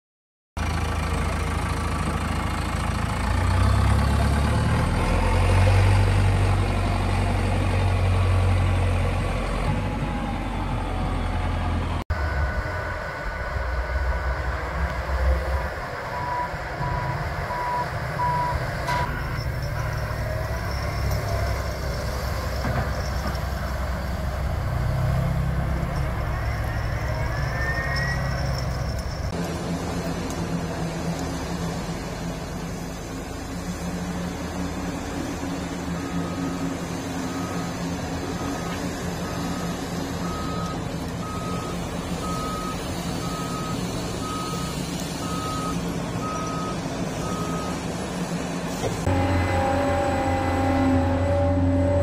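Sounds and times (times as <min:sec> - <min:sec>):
heavy truck engine running: 0:00.6 - 0:52.0
reversing alarm beeping: 0:16.0 - 0:22.0, 0:25.0 - 0:29.4, 0:35.9 - 0:47.9.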